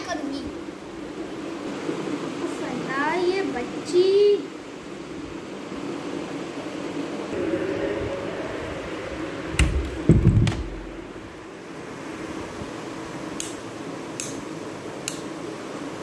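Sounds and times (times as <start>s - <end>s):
low room hum: 0.0s - 16.0s
phone handling thumps: 9.6s - 10.7s.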